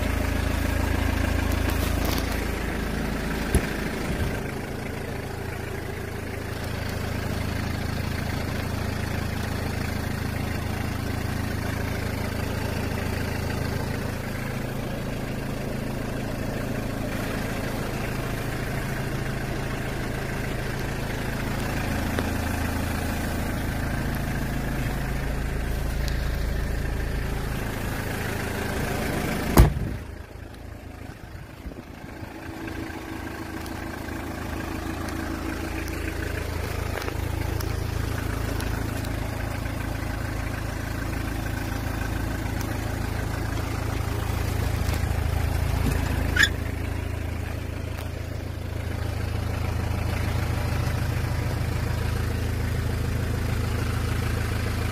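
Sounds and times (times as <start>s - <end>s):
diesel engine idling: 0.0s - 54.9s
door shutting thump: 29.6s - 29.9s.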